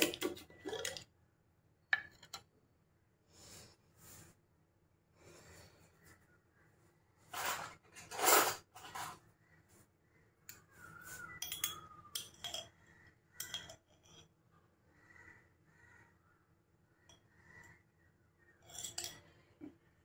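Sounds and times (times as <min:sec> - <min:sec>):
dishes and utensils clinking: 0:11.3 - 0:12.7, 0:13.4 - 0:14.3, 0:18.6 - 0:19.3.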